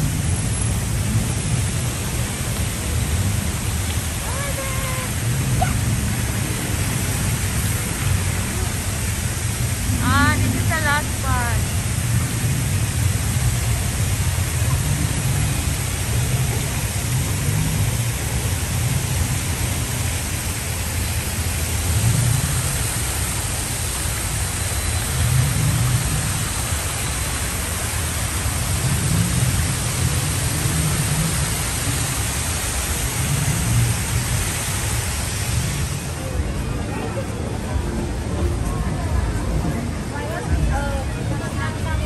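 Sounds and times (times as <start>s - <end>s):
water cascading hiss: 0.0s - 42.0s
low rumble: 25.0s - 42.0s.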